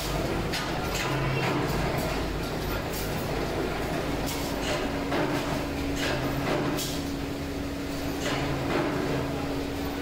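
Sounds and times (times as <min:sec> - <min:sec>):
workshop machine drone: 0:00.0 - 0:10.0.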